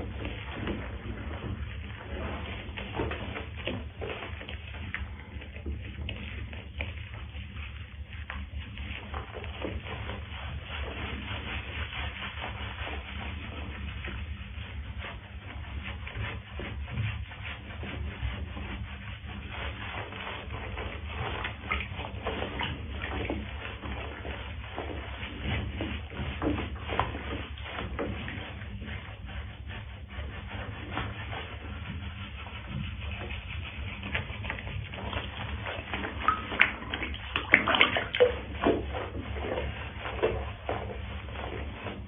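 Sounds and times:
hands scrubbing wet fur: 0:00.0 - 0:42.0
steady low hum: 0:00.0 - 0:42.0
water sloshing in a tub: 0:00.0 - 0:42.0.

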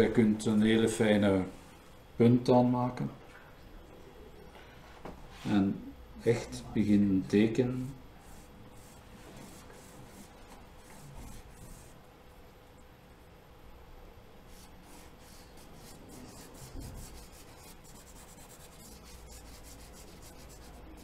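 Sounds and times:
eraser rubbing on paper: 0:08.2 - 0:12.0, 0:14.5 - 0:21.0.

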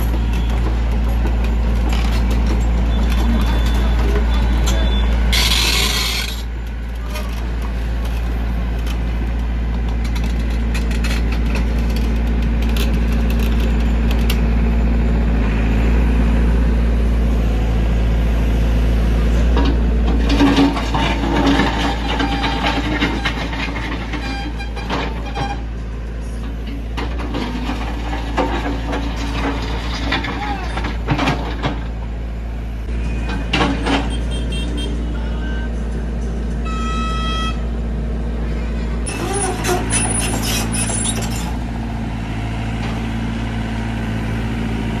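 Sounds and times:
rough engine with knocks: 0:00.0 - 0:14.8, 0:19.4 - 0:34.9, 0:39.0 - 0:45.0
diesel engine droning: 0:00.0 - 0:45.0
vehicle horn sounding: 0:34.1 - 0:35.2, 0:36.6 - 0:37.7.

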